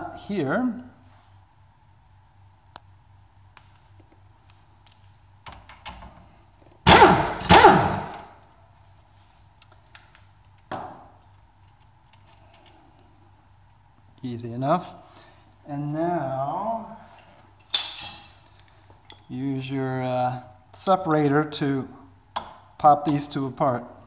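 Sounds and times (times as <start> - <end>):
power wrench bursts: 6.8 - 8.3.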